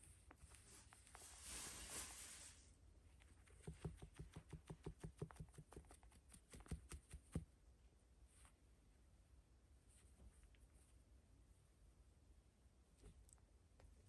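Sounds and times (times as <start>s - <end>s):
faint rustle: 0.0s - 3.6s.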